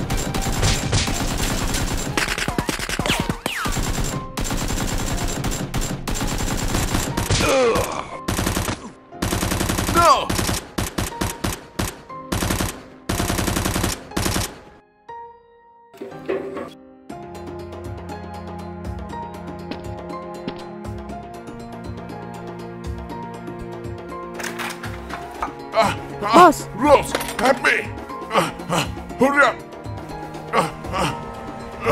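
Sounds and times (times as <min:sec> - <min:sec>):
automatic gunfire: 0:00.0 - 0:07.4, 0:08.3 - 0:14.6.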